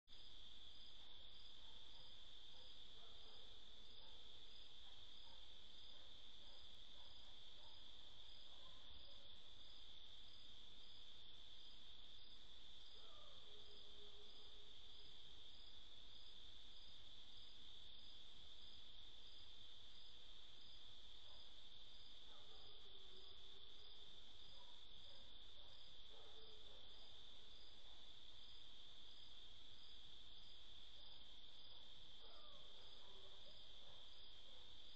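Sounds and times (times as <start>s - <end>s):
crickets trilling: 0.2s - 34.9s.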